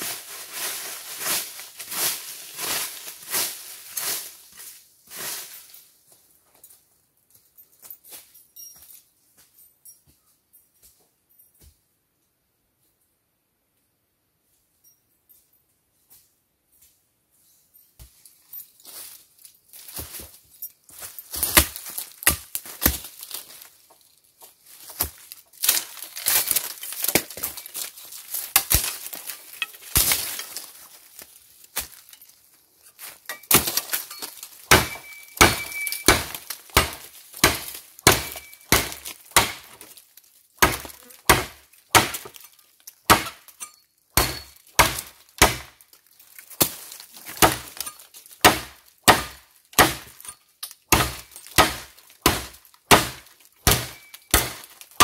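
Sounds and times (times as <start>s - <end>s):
shovel chopping bamboo: 21.4s - 23.3s, 25.0s - 31.2s, 33.0s - 39.9s, 40.6s - 43.6s, 44.2s - 45.8s, 46.4s - 50.2s, 50.8s - 55.0s.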